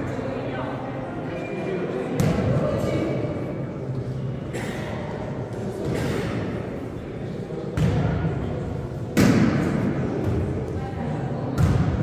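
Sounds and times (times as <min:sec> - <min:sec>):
background chatter: 0:00.0 - 0:12.0
volleyball thuds with hall echo: 0:02.0 - 0:04.2, 0:05.4 - 0:06.8, 0:07.4 - 0:12.0.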